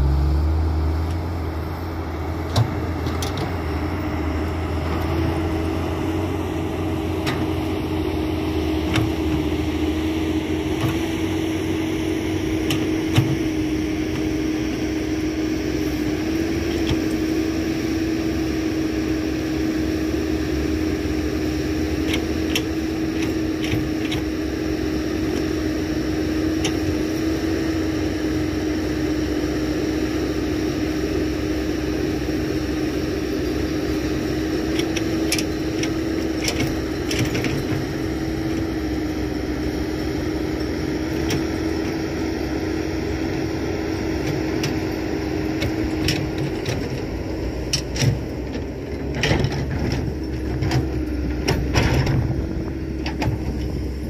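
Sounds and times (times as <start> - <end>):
diesel machinery engine running: 0.0 - 54.0.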